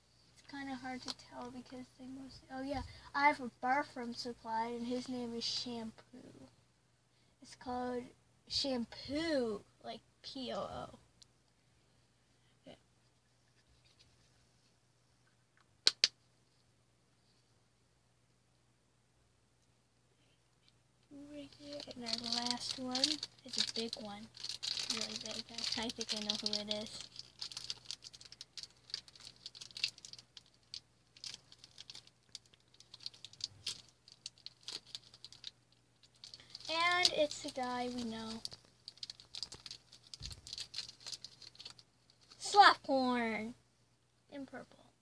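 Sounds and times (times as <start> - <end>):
faint handling sound: 13.0 - 15.7, 19.6 - 42.4
plastic bag crinkling: 21.2 - 42.5.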